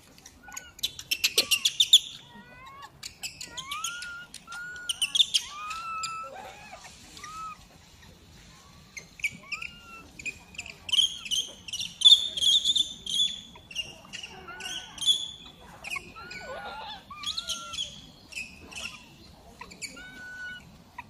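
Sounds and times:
infant monkey crying: 0.3s - 7.8s, 9.2s - 11.4s, 13.6s - 21.0s.

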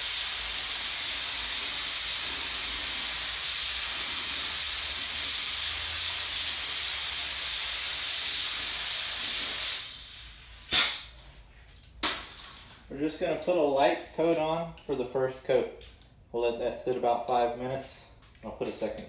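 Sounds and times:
paint spray gun hissing: 0.0s - 11.1s
sharp clack: 10.7s - 11.1s.

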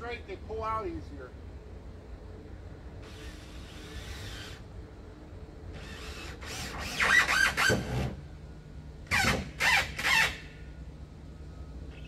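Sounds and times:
cordless drill driving screws: 3.0s - 4.6s, 5.8s - 8.2s.

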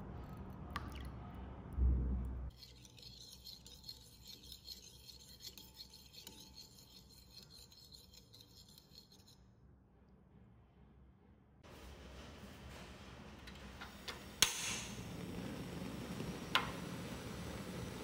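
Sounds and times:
fork beating eggs in bowl: 2.5s - 9.4s.

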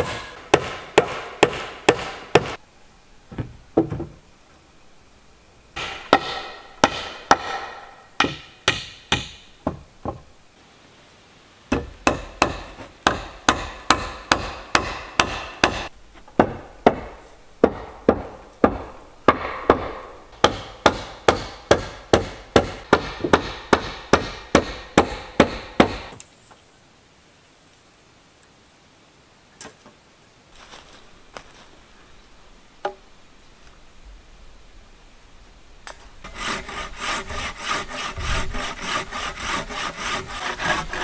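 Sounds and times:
hammer driving nails into wood: 0.0s - 2.6s.

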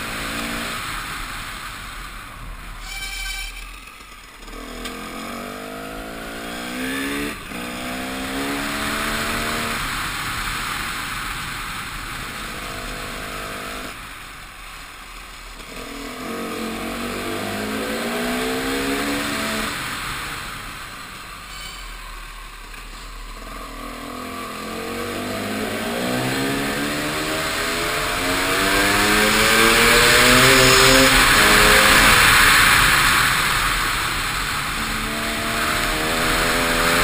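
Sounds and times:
two-stroke engine accelerating: 4.2s - 14.0s, 15.6s - 21.0s, 22.5s - 37.0s
steady rushing noise: 22.1s - 37.0s.

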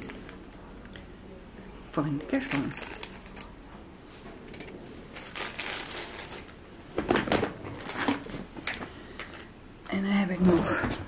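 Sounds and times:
shopping bag rustling: 5.0s - 8.8s.

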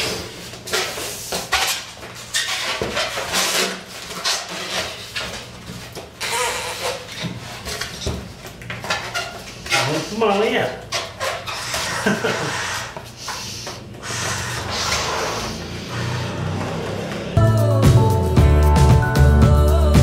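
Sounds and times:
breaths blowing up balloons: 6.2s - 7.4s, 11.3s - 17.4s.

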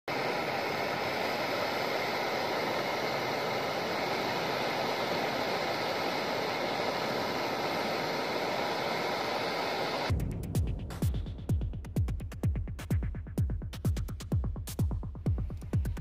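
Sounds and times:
gas torch flame hissing: 0.1s - 10.1s.

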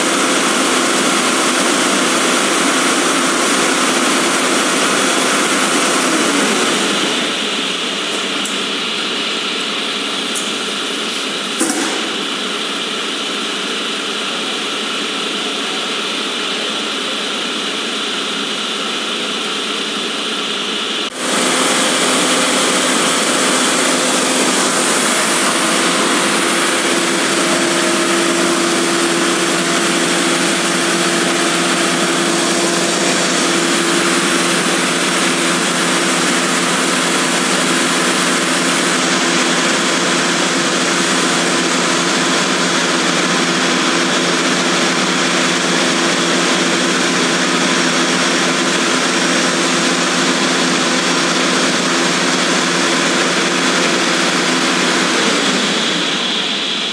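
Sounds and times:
diesel engine running: 0.0s - 56.9s
steady hum: 21.1s - 36.8s.

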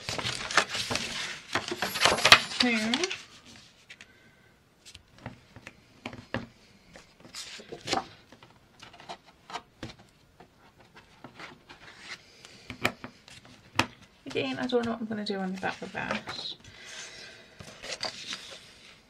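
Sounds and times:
paper and card rustling: 0.0s - 4.1s, 10.7s - 19.0s.

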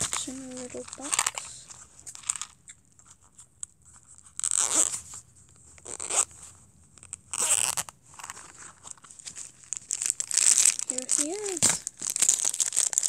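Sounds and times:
zipper being pulled open: 4.3s - 5.0s, 5.8s - 6.3s, 7.3s - 8.4s.

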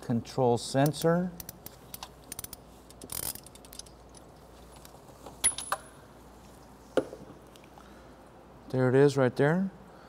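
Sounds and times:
metallic clicks of hand tools: 0.8s - 4.3s.

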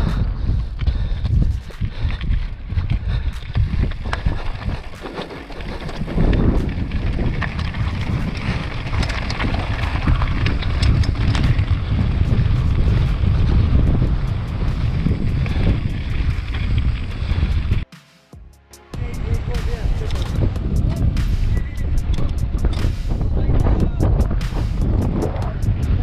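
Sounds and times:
wind buffeting microphone: 0.0s - 17.9s, 19.0s - 26.0s
bike tyres crunching on gravel: 1.4s - 17.9s.

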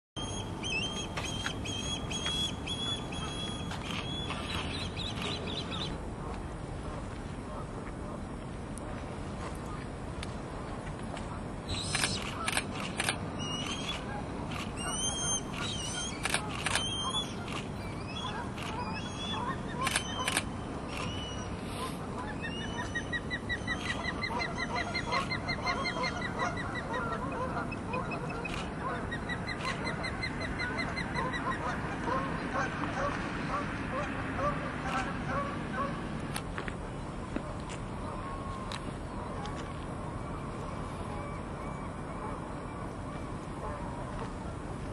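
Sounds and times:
osprey calling: 0.2s - 6.0s, 11.2s - 36.0s.

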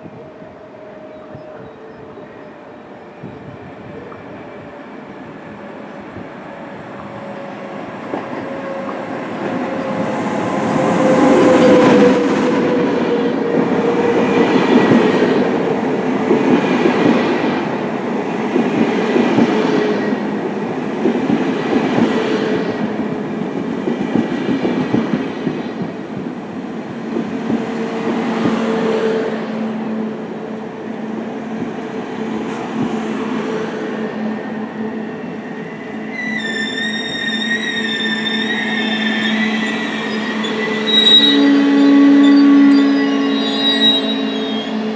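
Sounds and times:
electric train rolling past: 0.0s - 44.9s.

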